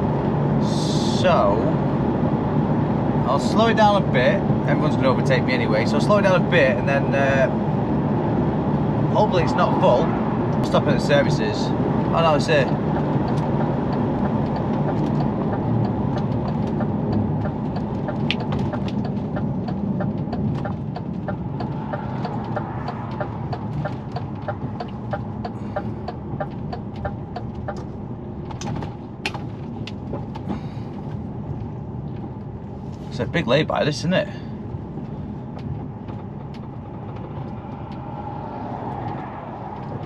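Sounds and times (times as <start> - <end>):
diesel engine running: 0.0 - 40.0
turn indicator ticking: 11.8 - 32.5.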